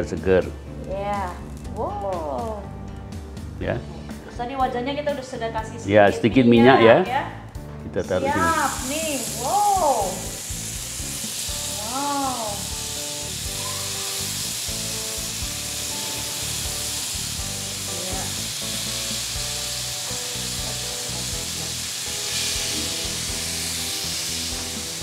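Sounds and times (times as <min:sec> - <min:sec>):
skewers sizzling on grill pan: 0:08.1 - 0:25.0.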